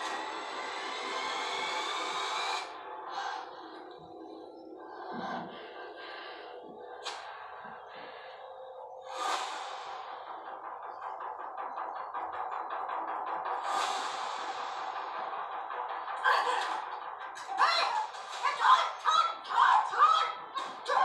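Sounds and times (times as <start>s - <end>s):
low background music: 0.0s - 21.0s
fast ticking rhythm: 9.2s - 21.0s.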